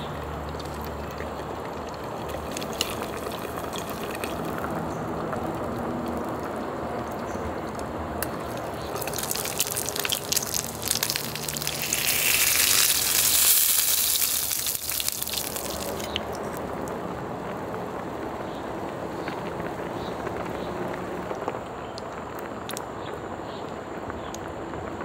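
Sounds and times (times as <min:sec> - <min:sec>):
broth bubbling: 0:00.0 - 0:19.5
chicken sizzling on a grill plate: 0:08.3 - 0:16.2.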